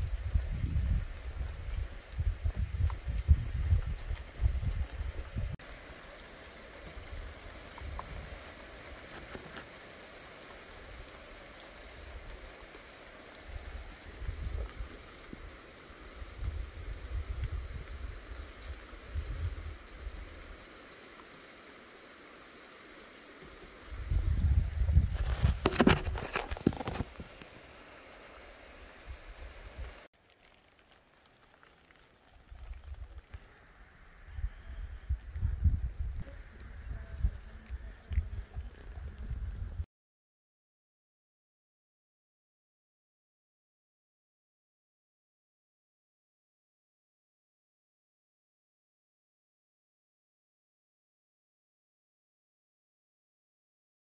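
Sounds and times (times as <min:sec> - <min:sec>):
rain falling steadily: 0:00.0 - 0:39.9.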